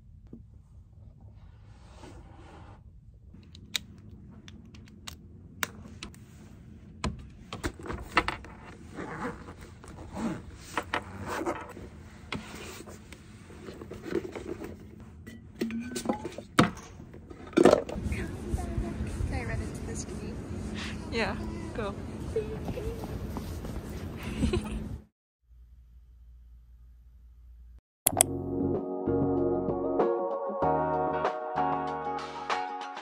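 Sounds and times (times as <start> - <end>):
bags rustling and scraping: 8.0 - 15.0.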